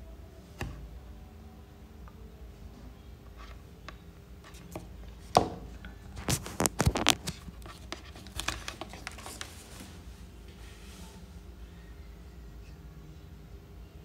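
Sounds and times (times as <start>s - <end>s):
object handled near microphone: 4.4s - 10.0s.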